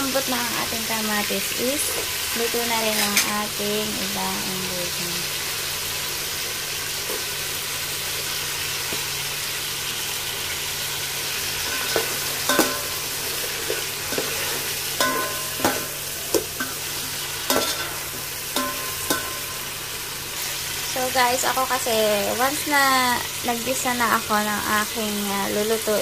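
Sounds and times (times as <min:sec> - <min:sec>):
vegetables sizzling in a pot: 0:00.0 - 0:26.0
metal spatula clinking against pot: 0:11.7 - 0:13.0, 0:15.0 - 0:16.8, 0:17.5 - 0:18.0, 0:18.6 - 0:19.6.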